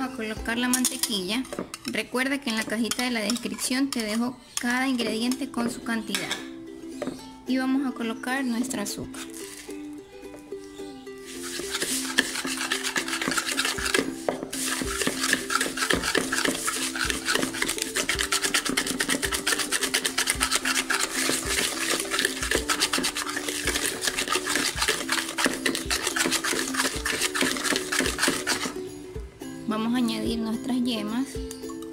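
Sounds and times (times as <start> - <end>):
whisk scraping a bowl: 0.7 - 4.2, 11.3 - 28.9.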